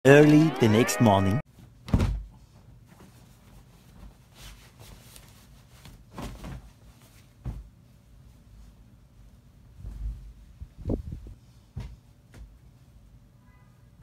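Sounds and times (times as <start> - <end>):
bedding rustling: 2.8 - 10.7.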